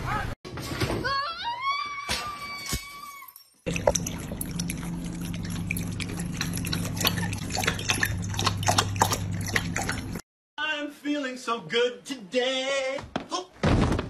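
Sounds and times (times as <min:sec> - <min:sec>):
dog lapping water: 0:03.7 - 0:10.2
steady low hum: 0:03.7 - 0:10.2.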